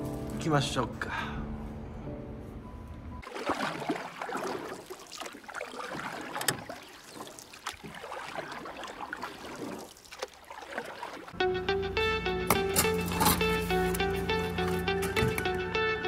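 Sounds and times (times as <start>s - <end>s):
bath water running and splashing: 3.2s - 11.4s
guitar music: 11.4s - 16.0s.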